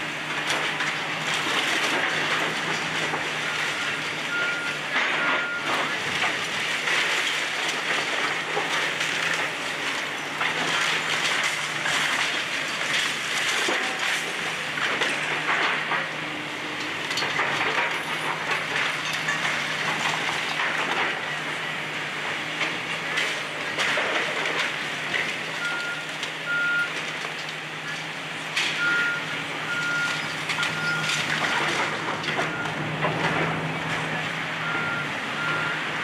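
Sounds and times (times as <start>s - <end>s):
diesel engine running: 0.0s - 36.0s
breaking masonry crunching: 0.4s - 16.2s, 22.6s - 35.6s.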